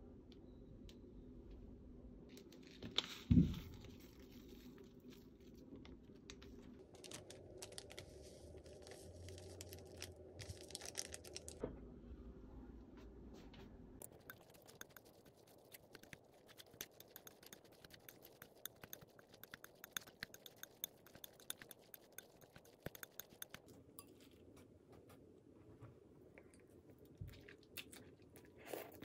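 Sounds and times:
crinkling rustles: 0:02.3 - 0:11.6.

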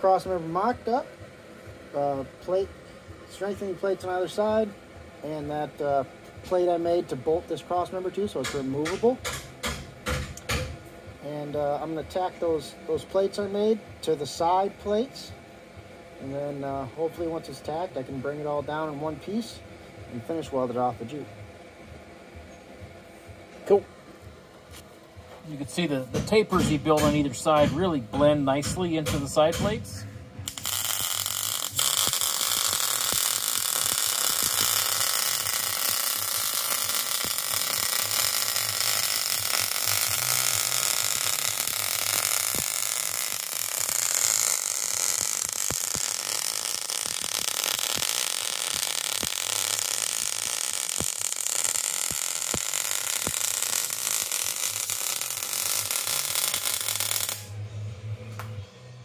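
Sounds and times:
welding arc crackling and popping: 0:06.5 - 0:10.8, 0:28.5 - 0:57.5.

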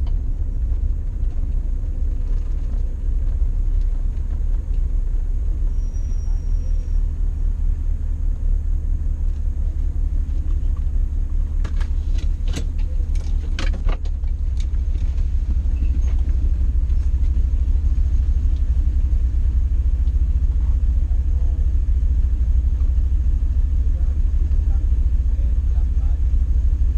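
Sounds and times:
car engine idling: 0:00.0 - 0:26.9
car door clicks and rattles: 0:11.6 - 0:15.1.

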